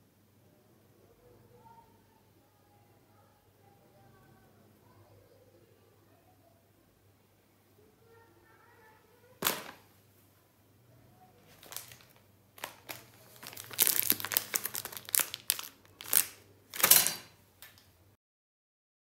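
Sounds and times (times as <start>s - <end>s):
plastic wrappers crinkling: 11.4s - 17.9s.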